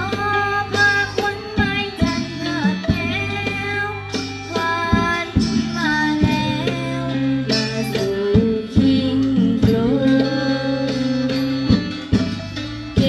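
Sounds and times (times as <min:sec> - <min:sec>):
person singing: 0:00.0 - 0:13.0
struck and plucked instrument notes: 0:00.0 - 0:13.0.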